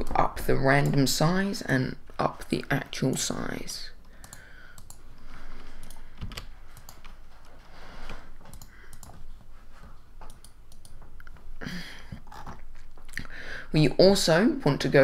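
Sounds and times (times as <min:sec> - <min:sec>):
mouse clicks: 0:08.5 - 0:09.2.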